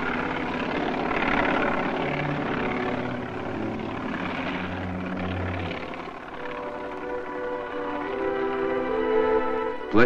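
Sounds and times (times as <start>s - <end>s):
helicopter engine and rotor: 0.0s - 10.0s.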